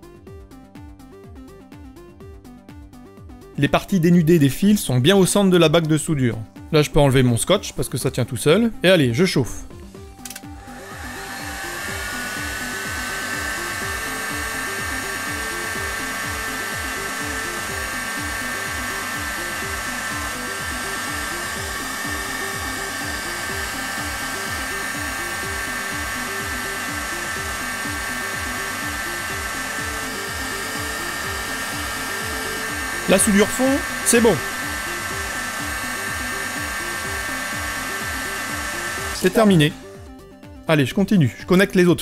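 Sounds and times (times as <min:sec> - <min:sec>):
background music with beat: 0:00.0 - 0:42.0
heat gun whine: 0:09.8 - 0:40.2.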